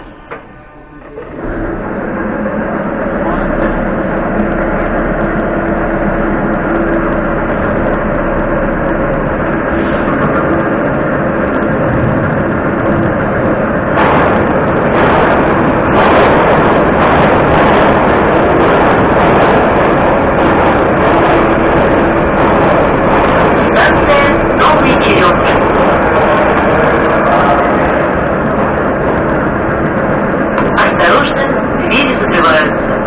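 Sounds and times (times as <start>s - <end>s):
metro train pulling in: 0.0s - 33.0s
stationary metro car hum: 0.0s - 33.0s.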